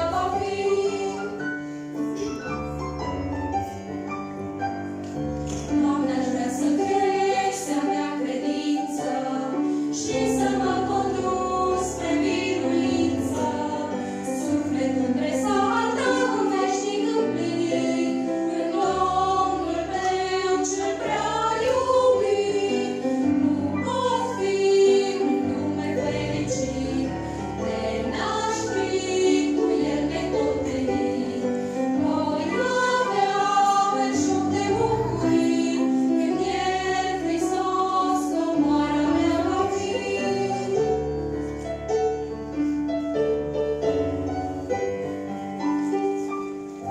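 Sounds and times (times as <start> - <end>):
women singing together: 0.0 - 1.6, 5.5 - 41.0.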